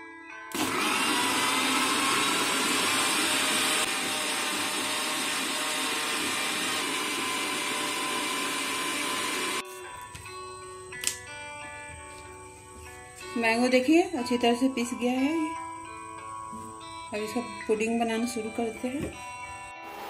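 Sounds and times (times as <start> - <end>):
electric blender motor running: 0.5 - 9.6.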